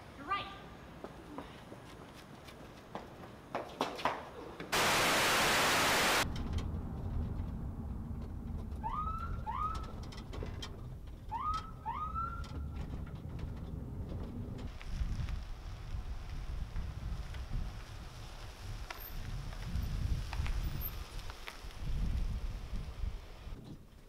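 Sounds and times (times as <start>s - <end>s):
loud hiss burst: 4.8s - 6.2s.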